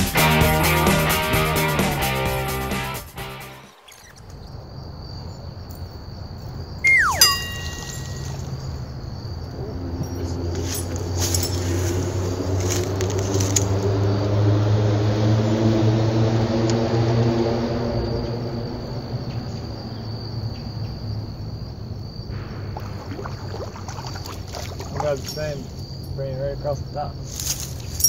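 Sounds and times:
high insect trill: 0:03.2 - 0:28.0
distant motor droning: 0:11.4 - 0:26.9.

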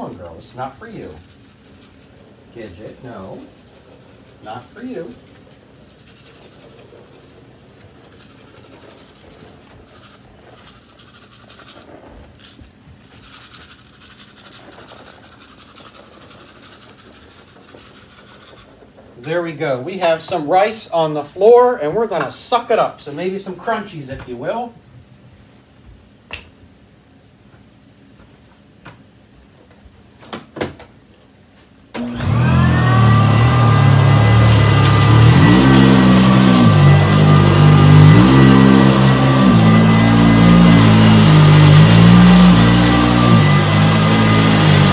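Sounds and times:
faint rustling and scratching: 0:00.0 - 0:20.4
vacuum cleaner motor whine: 0:32.0 - 0:44.9.

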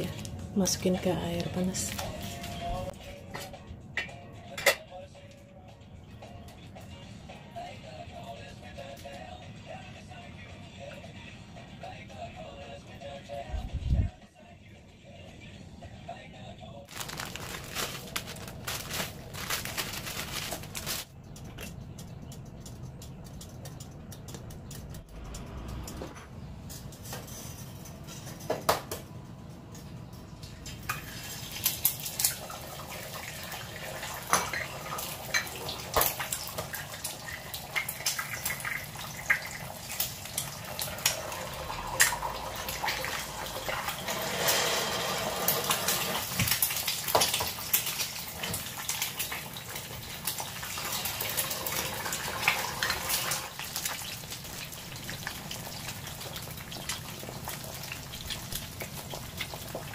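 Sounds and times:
eggshells cracking: 0:16.9 - 0:21.7
eggs sizzling in hot oil: 0:30.6 - 0:59.9.

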